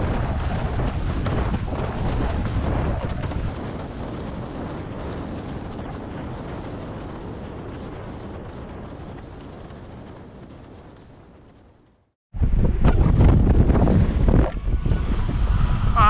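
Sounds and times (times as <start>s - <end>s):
water rushing under board: 0.0s - 10.0s
wind buffeting microphone: 0.0s - 16.0s.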